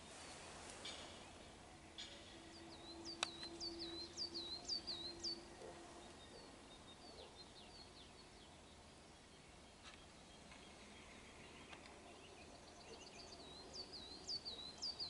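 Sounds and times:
faint steady low hum: 0:00.0 - 0:15.0
songbird singing high notes: 0:02.0 - 0:06.5.

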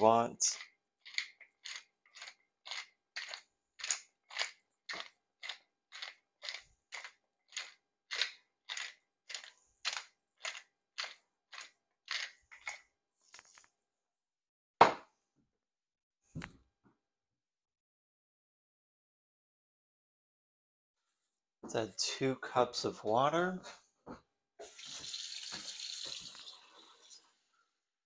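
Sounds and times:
pepper mill grinding: 0:00.4 - 0:12.8
knock: 0:14.8 - 0:15.0.

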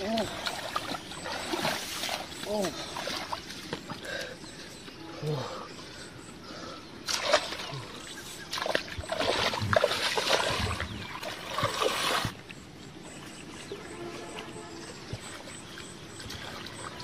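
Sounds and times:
water splashing as someone wades: 0:00.0 - 0:04.0, 0:07.1 - 0:12.4.

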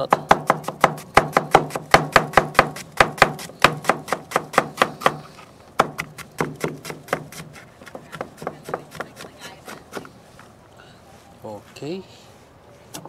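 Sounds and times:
knife chopping on plastic board: 0:00.0 - 0:10.1.

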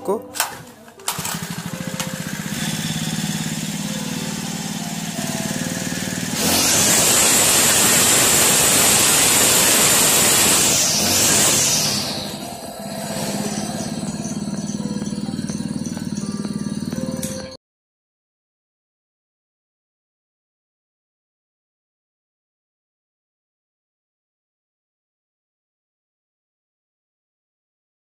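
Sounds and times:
brush cutter engine idling and revving: 0:00.4 - 0:17.6.

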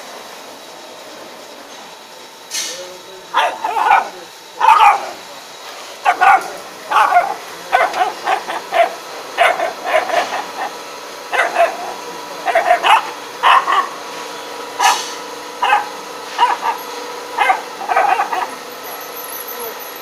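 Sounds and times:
puppy yapping: 0:03.3 - 0:05.2, 0:06.0 - 0:14.0, 0:14.8 - 0:18.6.

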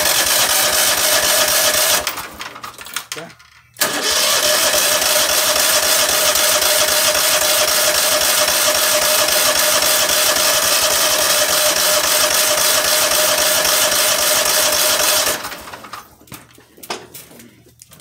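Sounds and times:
electric starter cranking engine: 0:00.0 - 0:03.2, 0:03.8 - 0:16.1.

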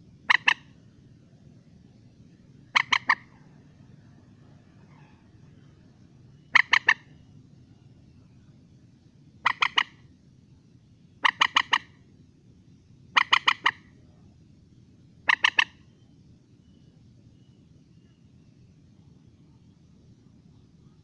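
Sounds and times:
moorhen calling: 0:00.2 - 0:00.8, 0:02.6 - 0:05.8, 0:06.4 - 0:08.4, 0:09.4 - 0:10.2, 0:11.1 - 0:12.1, 0:13.1 - 0:14.0, 0:15.2 - 0:16.1.

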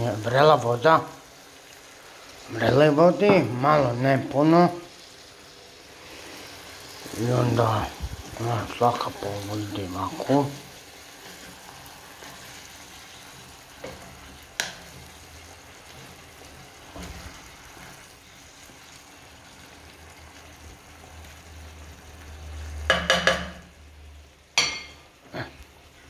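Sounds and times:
frying pan sizzling: 0:00.0 - 0:26.0
wooden spatula scraping pan: 0:08.7 - 0:18.8
cookware clatter: 0:22.9 - 0:23.6, 0:24.6 - 0:25.0.

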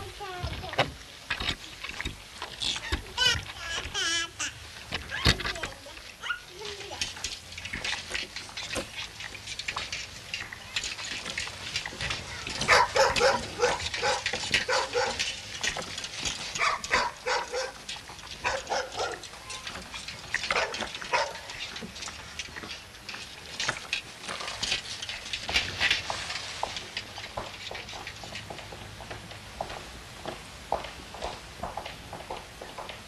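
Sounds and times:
footsteps on wet gravel: 0:00.0 - 0:33.0
dog barking: 0:12.7 - 0:15.2, 0:16.6 - 0:17.8, 0:18.4 - 0:19.2, 0:20.5 - 0:21.4.

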